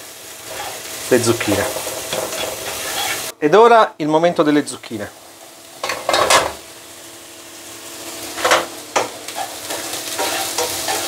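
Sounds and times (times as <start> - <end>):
vegetables sizzling in a pan: 0.0 - 3.4, 4.1 - 11.0
spatula scraping a pan: 0.4 - 0.9, 1.5 - 3.3, 9.4 - 11.0.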